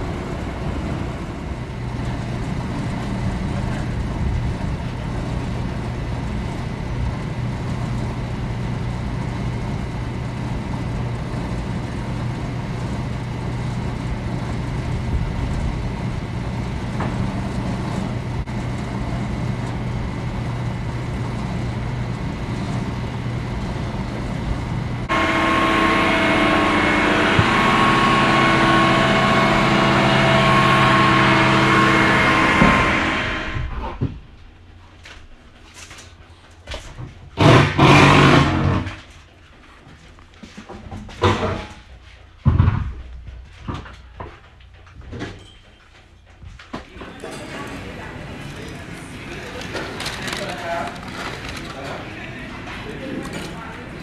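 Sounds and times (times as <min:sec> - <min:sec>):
truck engine running: 0:00.0 - 0:33.7, 0:47.0 - 0:54.0
steady whine: 0:00.0 - 0:36.5, 0:46.8 - 0:54.0.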